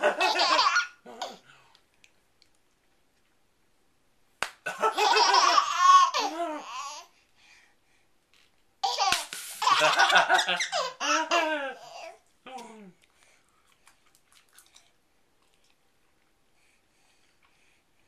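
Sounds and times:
baby laughing: 0.0s - 1.4s, 4.8s - 7.1s, 8.8s - 12.2s.

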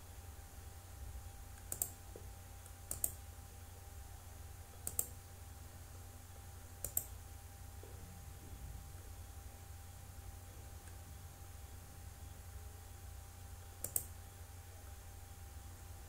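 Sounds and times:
faint steady low hum: 0.0s - 16.0s
computer mouse double clicks: 1.6s - 2.0s, 6.8s - 7.1s.

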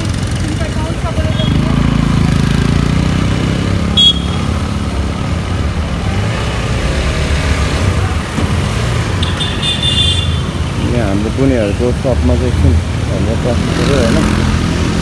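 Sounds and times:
motorcycle engine running: 0.0s - 5.2s
street traffic: 0.0s - 15.0s.

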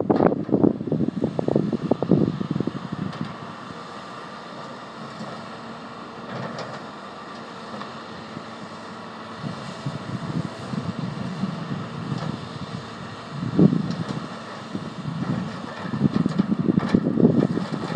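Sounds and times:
wind buffeting microphone: 0.0s - 3.4s, 9.3s - 17.9s
excavator diesel engine droning: 0.0s - 17.9s.

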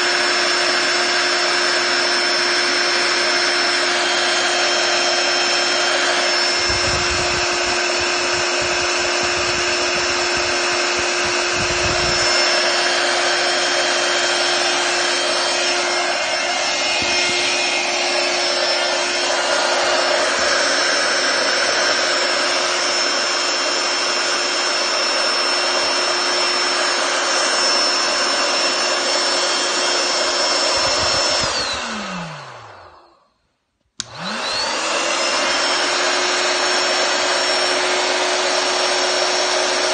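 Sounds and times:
electric air pump running: 0.0s - 33.2s, 34.0s - 39.9s.

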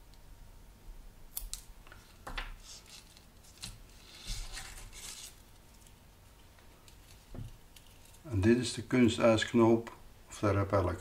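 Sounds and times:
plastic lure rustling and clicking: 5.2s - 8.3s.

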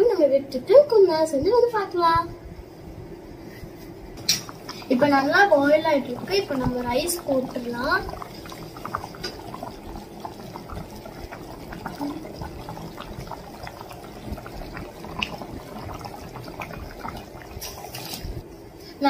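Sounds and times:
liquid boiling and bubbling: 4.2s - 18.6s.

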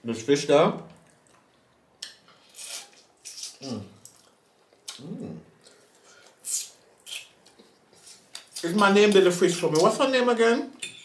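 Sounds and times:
person humming mm: 4.9s - 5.5s.

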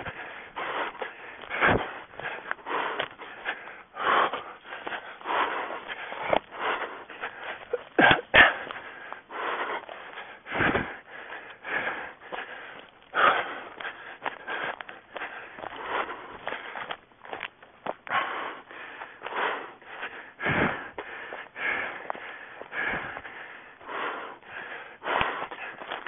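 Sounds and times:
heavy breathing: 0.0s - 26.0s
rustling through undergrowth: 11.2s - 23.2s, 25.2s - 26.0s.

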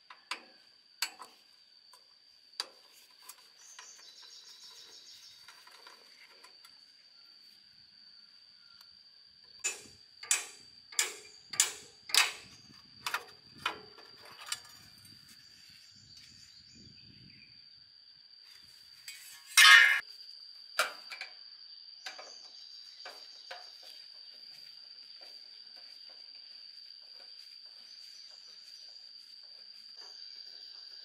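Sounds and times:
high insect drone: 0.0s - 31.0s
short clatter of metal: 19.1s - 20.0s.

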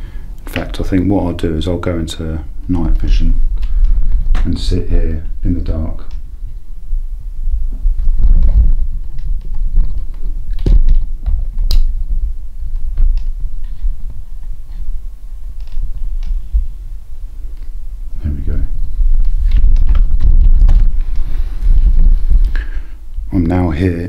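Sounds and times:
camera handling rumble: 2.6s - 6.6s, 7.6s - 16.8s, 18.5s - 23.1s.

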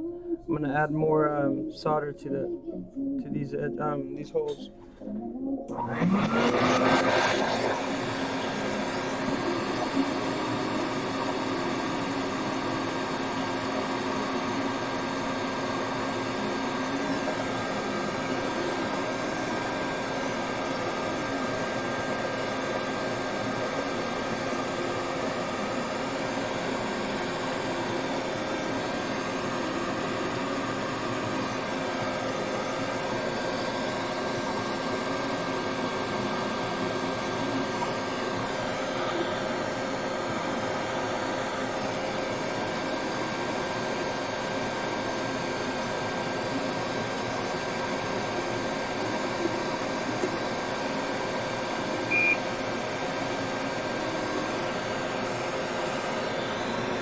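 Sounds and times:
fan motor humming: 0.0s - 57.0s
short high-pitched beep: 52.1s - 52.4s.

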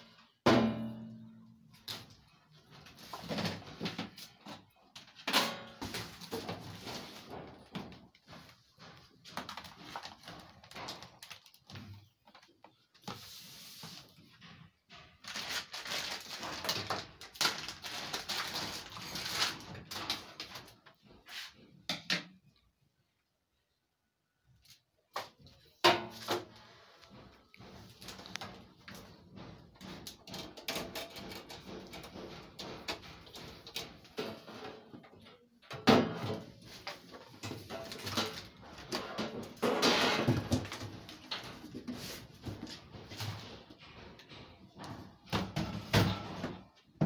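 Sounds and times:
plastic packaging crinkling: 9.3s - 11.7s, 15.2s - 20.7s.

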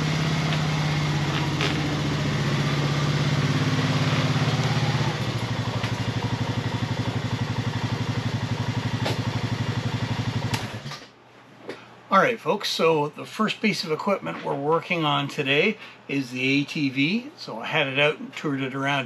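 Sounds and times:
atv engine idling: 0.0s - 10.9s.

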